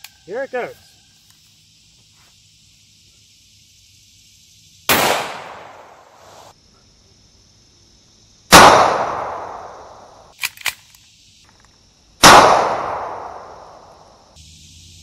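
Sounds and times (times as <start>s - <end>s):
pistol shots: 4.9s - 6.0s, 8.5s - 9.8s, 12.2s - 13.6s
small clicks: 10.3s - 11.8s.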